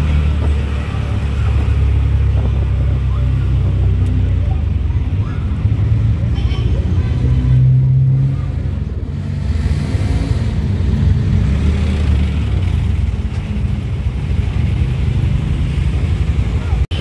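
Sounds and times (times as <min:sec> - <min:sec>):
road and traffic noise: 0:00.0 - 0:17.0.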